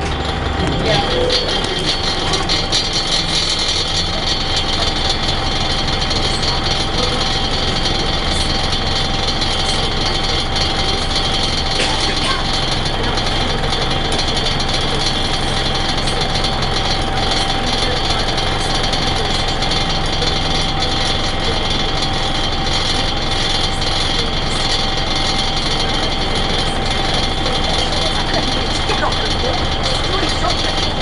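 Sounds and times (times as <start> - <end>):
bus body rattling: 0.0 - 31.0
bus diesel engine running: 0.0 - 31.0.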